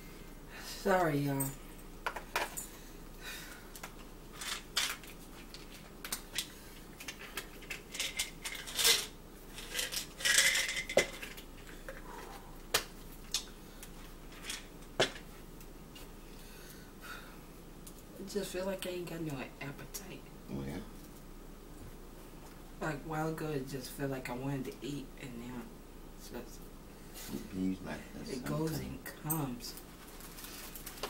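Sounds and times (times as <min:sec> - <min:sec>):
plastic rustling: 0:29.8 - 0:31.0.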